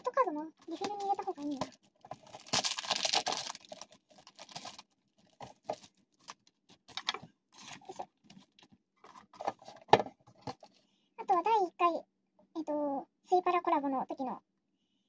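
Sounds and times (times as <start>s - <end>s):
plastic rustling: 0.6s - 10.8s.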